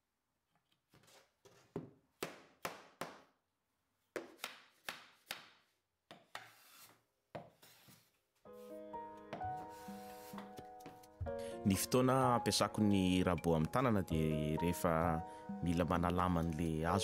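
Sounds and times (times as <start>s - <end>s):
sharp wooden strokes: 6.3s - 7.0s
music: 8.5s - 17.0s.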